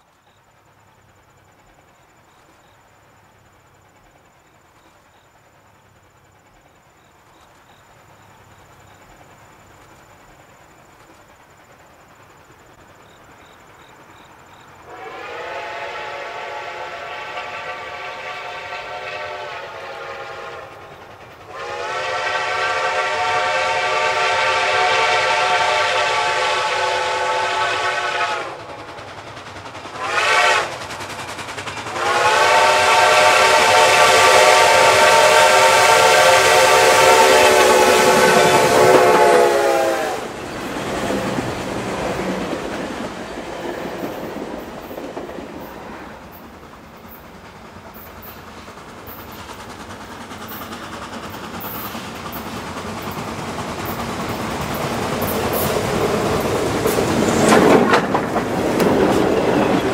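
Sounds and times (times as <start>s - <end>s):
insects chirping: 0.0s - 59.9s
steam locomotive whistle: 14.9s - 28.9s, 29.9s - 30.9s, 31.9s - 42.7s, 54.7s - 58.0s, 58.7s - 59.9s.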